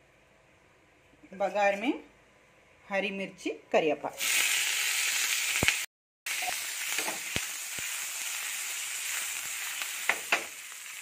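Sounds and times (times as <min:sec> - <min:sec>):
chillies sizzling in hot oil: 0:04.1 - 0:11.0.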